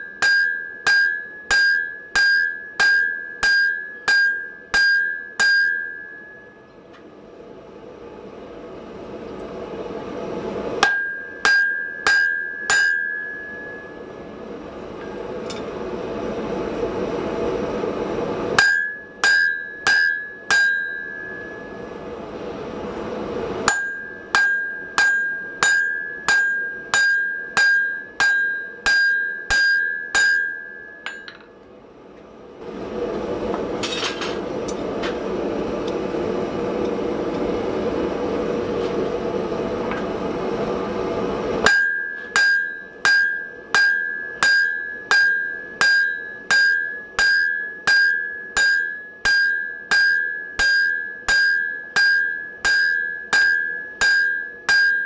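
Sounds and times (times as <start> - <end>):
hammer ringing on anvil: 0.0 - 6.8, 10.8 - 14.2, 18.6 - 22.0, 23.6 - 31.6, 41.6 - 55.0.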